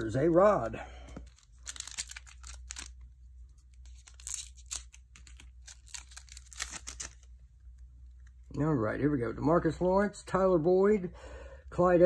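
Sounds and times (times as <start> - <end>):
foil wrapper tearing and crinkling: 1.3 - 3.0, 3.8 - 7.3.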